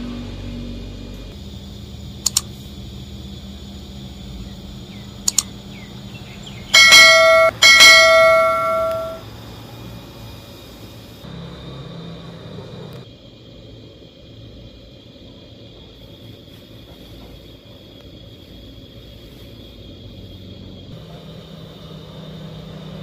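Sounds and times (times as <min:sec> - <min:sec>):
double mouse clicks: 0:02.2 - 0:02.5, 0:05.3 - 0:05.5
notification bell chime: 0:06.8 - 0:09.2.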